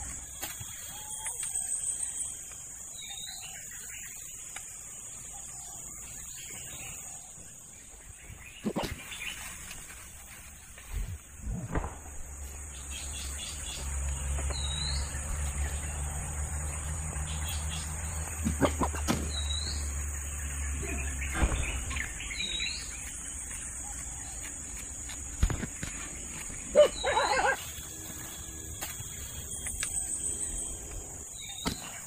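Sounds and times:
bird chirps: 25.8s - 32.0s.

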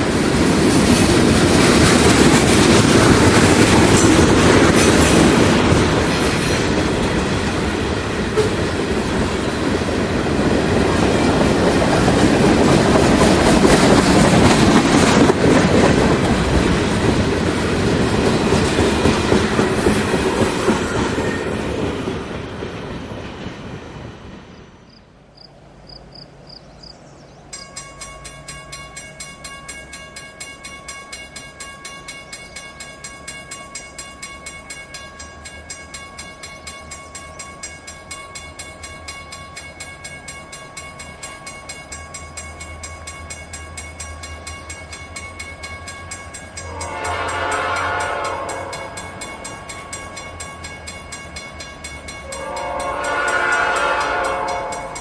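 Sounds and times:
diesel locomotive rumble: 0.0s - 55.0s
crossing bell ringing: 0.8s - 9.0s, 27.4s - 55.0s
locomotive horn: 46.6s - 49.2s, 52.2s - 55.0s.

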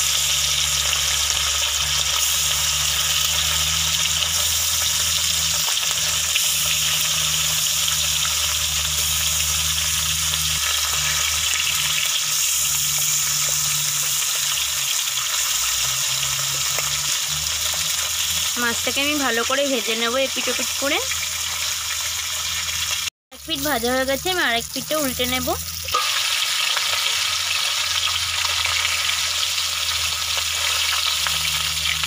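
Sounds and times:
low hum: 0.0s - 21.2s
fish sizzling in hot oil: 0.0s - 32.0s.

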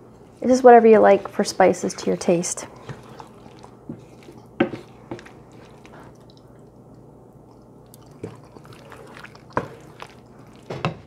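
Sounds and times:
utensil stirring thick filling: 0.4s - 11.0s.

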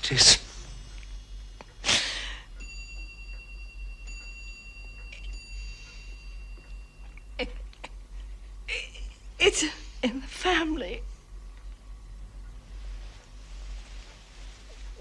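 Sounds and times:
low background hum: 0.0s - 15.0s
chime-like bell music: 2.4s - 8.0s.

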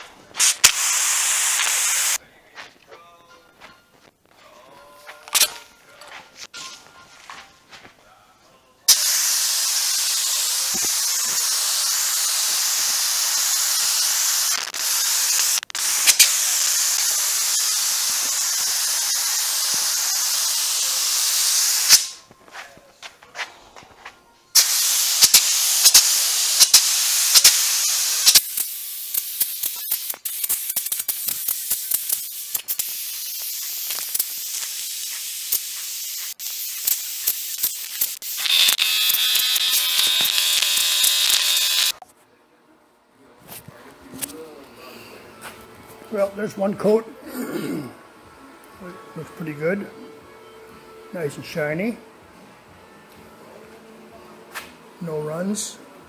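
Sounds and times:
paint spray gun hissing: 0.4s - 2.2s, 8.9s - 22.2s, 24.6s - 42.0s.

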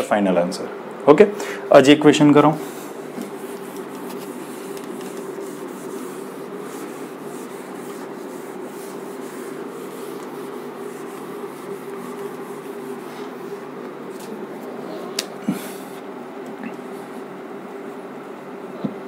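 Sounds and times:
duster scrubbing a whiteboard: 2.2s - 16.2s.

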